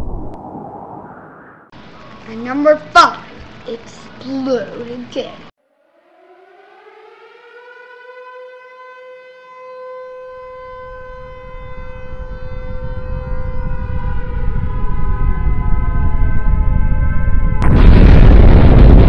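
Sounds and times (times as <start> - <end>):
explosion sound effect: 0.0 - 1.7, 17.6 - 19.0
low rumble: 0.0 - 1.9, 11.7 - 19.0
siren wail: 5.6 - 19.0.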